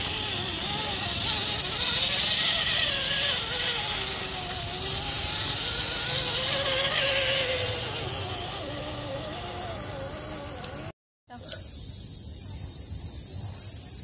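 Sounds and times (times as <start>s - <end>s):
electric motor whining: 0.0s - 11.0s
steady hiss: 0.0s - 14.0s.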